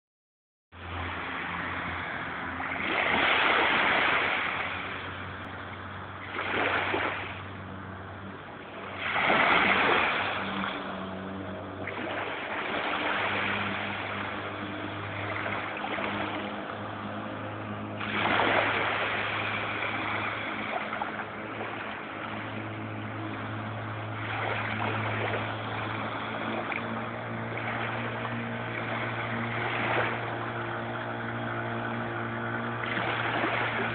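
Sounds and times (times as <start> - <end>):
small waves on pebbly beach: 0.8 - 33.9
steady low hum: 0.8 - 33.9.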